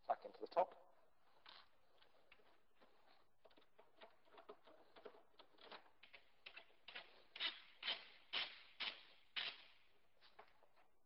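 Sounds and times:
screwdriver scraping strokes: 6.5s - 9.7s.

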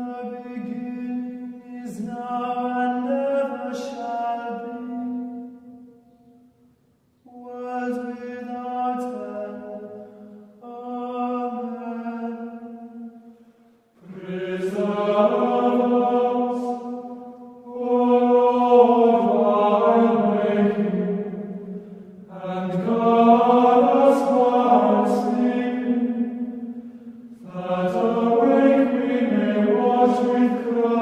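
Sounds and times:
choir singing a chant: 7.3s - 13.4s, 14.0s - 31.0s.

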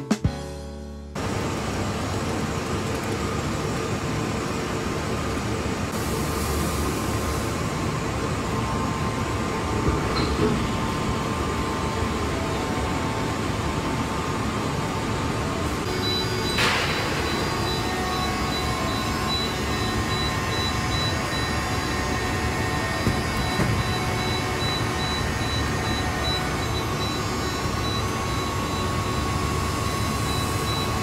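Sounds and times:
industrial machinery hum and hiss: 1.1s - 31.0s.

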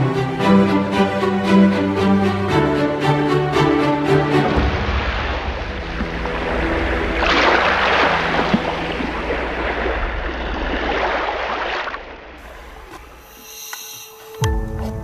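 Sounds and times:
sea waves: 0.0s - 14.4s
wind: 4.2s - 15.0s.

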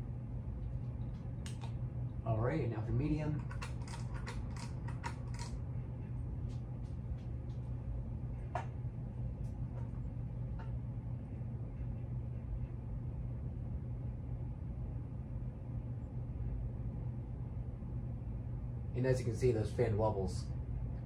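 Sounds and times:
ceiling fan motor hum: 0.0s - 21.0s.

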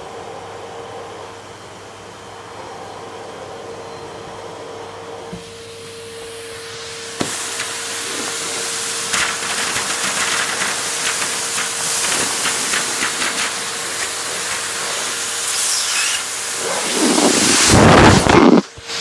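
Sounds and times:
vacuum cleaner running: 0.0s - 19.0s.

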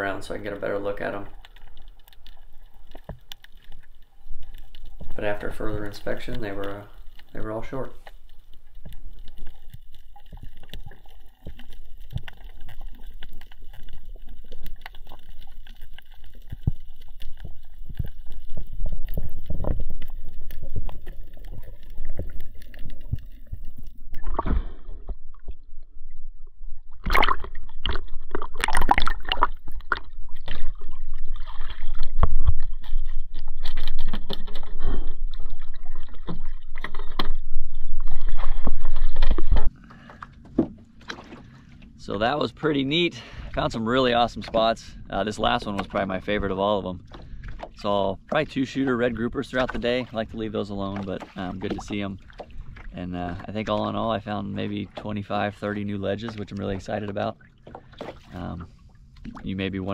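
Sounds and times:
underwater low rumble: 0.0s - 59.9s
water splashing and sloshing: 0.0s - 59.9s.

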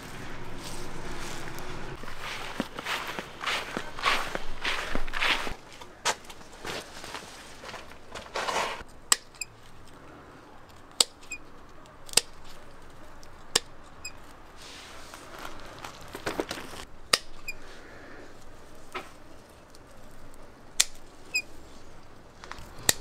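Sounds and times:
rustling of plant vines: 0.0s - 23.0s
pruning shears snipping: 7.7s - 10.0s, 10.6s - 14.4s, 15.5s - 17.7s, 18.9s - 23.0s.

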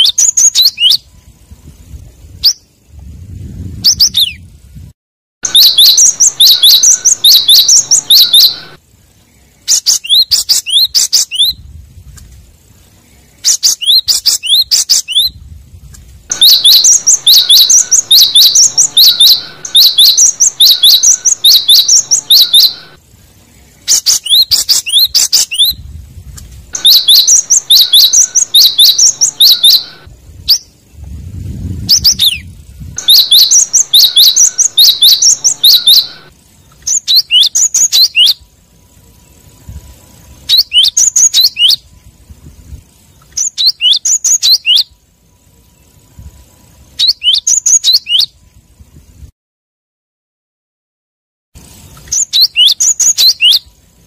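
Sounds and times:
bird singing high sharp notes: 0.0s - 1.2s, 5.4s - 8.8s, 16.3s - 25.8s, 26.7s - 31.2s, 31.8s - 38.5s, 40.4s - 41.9s, 43.3s - 44.9s, 51.9s - 53.7s.

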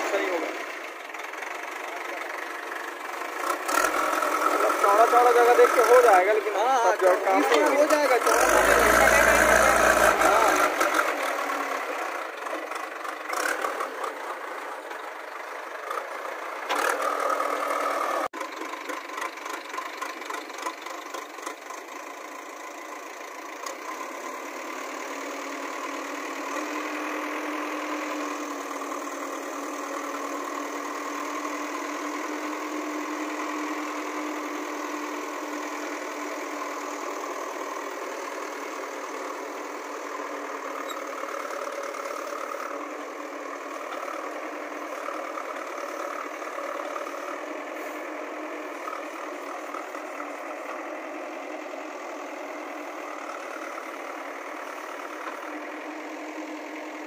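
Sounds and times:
backhoe diesel engine running: 0.0s - 57.0s.

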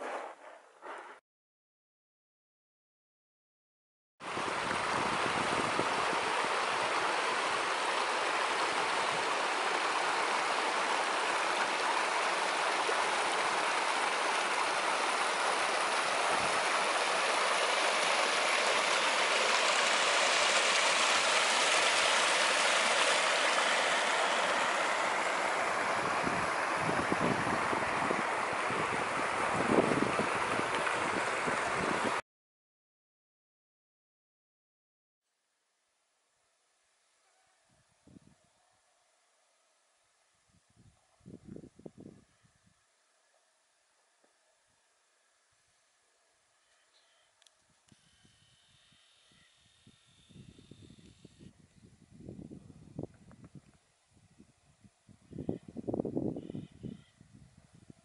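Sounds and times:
creek running over rocks: 4.3s - 32.1s.

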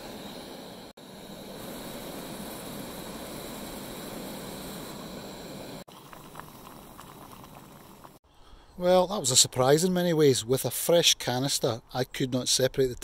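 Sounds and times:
gas stove burner hissing: 0.0s - 5.9s.

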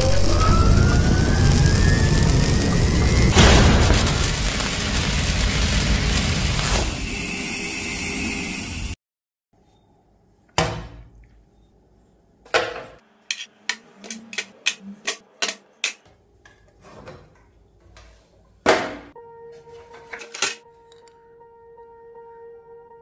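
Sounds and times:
loud whoosh: 0.4s - 7.4s.

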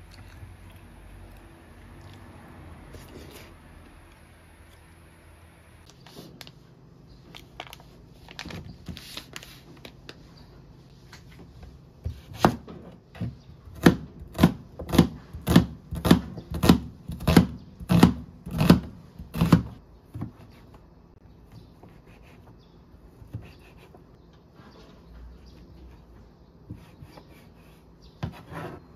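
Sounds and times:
knife slicing onion on cutting board: 12.0s - 12.7s, 13.7s - 19.8s.

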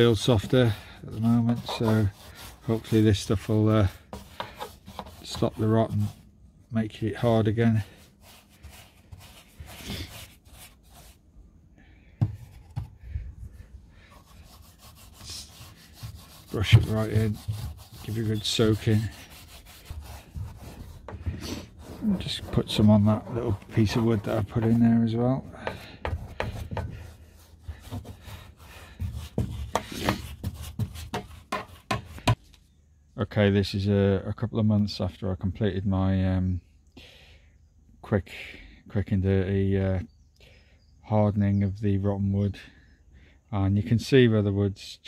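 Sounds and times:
paintbrush bristles rasping on wood: 0.0s - 6.3s, 7.1s - 11.2s, 14.0s - 32.4s.

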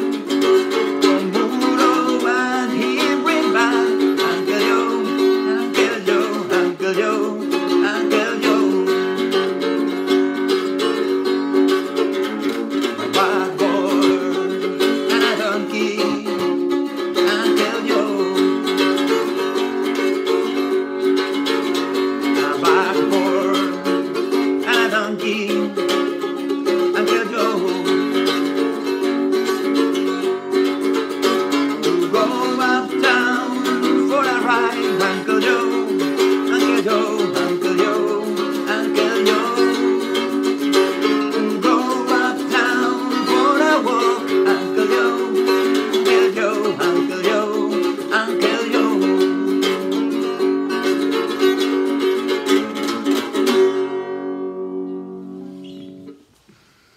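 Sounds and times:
mandolin strumming chords: 0.0s - 56.3s
man singing: 0.8s - 9.8s, 12.4s - 20.1s, 22.0s - 28.6s, 31.0s - 50.2s.

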